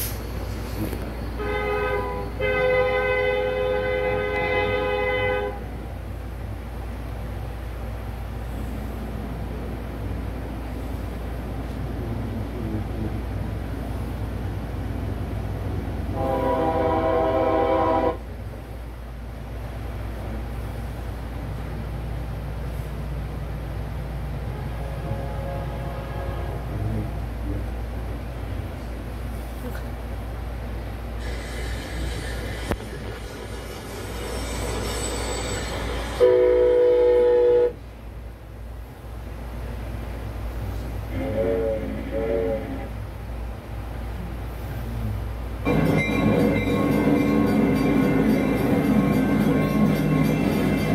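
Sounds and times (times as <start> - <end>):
diesel freight train rumbling: 0.0 - 50.9
locomotive horn blast: 1.4 - 5.8, 16.1 - 18.3, 24.5 - 27.1, 35.9 - 37.8, 41.0 - 43.0, 45.7 - 50.9.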